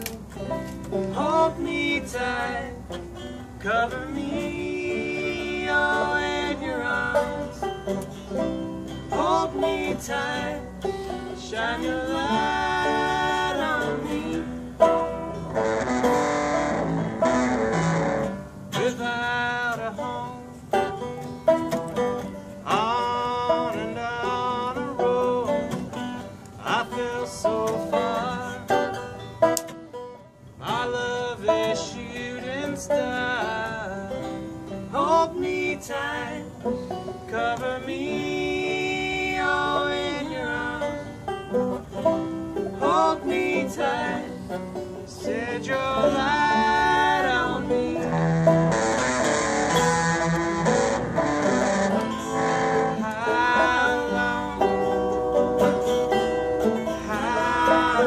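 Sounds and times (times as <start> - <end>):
banjo picking: 0.0 - 58.0
strummed acoustic guitar: 0.0 - 58.0
man singing: 1.0 - 2.9, 3.6 - 7.7, 9.1 - 14.6, 18.8 - 20.7, 22.6 - 26.0, 26.6 - 29.0, 30.6 - 41.0, 42.7 - 49.4, 51.5 - 55.8, 56.6 - 58.0.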